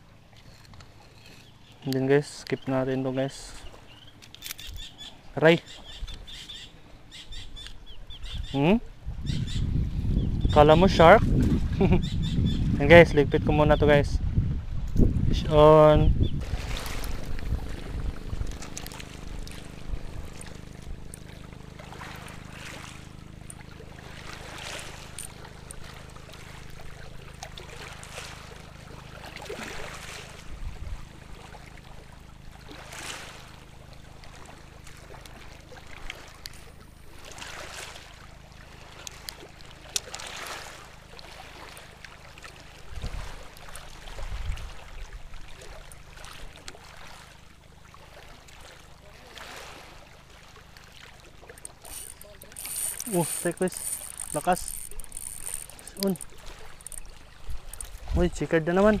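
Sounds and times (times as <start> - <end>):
steady low hum: 16.1 - 59.0
small sea waves washing in: 16.4 - 54.5.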